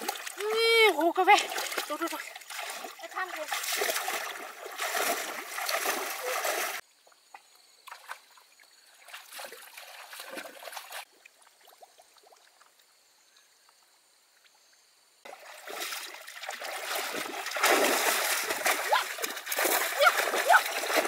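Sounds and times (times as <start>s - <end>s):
water splashing: 0.0s - 6.8s, 9.0s - 12.7s, 15.3s - 21.0s
trickling water: 0.0s - 13.2s, 15.2s - 21.0s.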